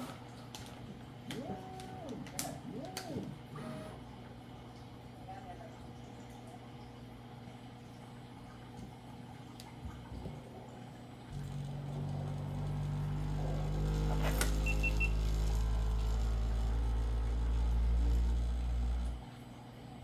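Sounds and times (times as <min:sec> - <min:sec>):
stepper motors humming: 0:00.0 - 0:04.1, 0:11.3 - 0:19.3.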